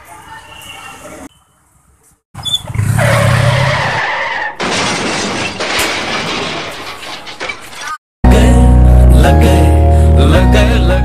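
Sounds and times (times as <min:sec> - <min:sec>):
crash with shattering: 0:04.6 - 0:08.0.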